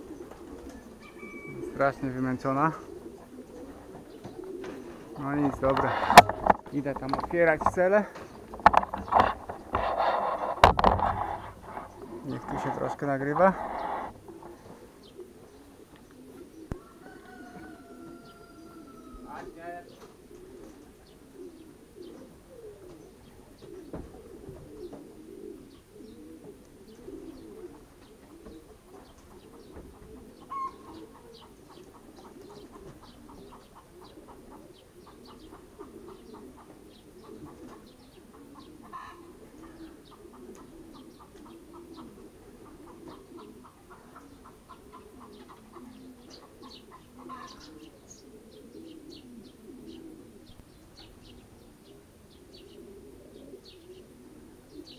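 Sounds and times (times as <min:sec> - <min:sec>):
pigeons cooing: 0:00.0 - 0:54.9
wing flaps: 0:03.0 - 0:14.6.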